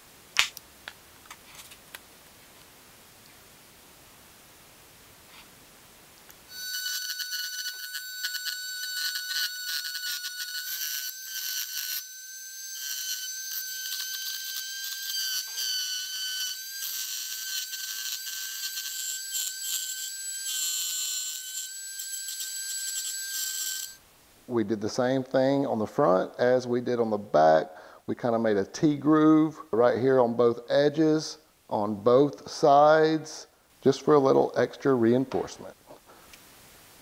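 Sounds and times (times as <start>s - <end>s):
rotary tool whining: 6.5s - 24.0s.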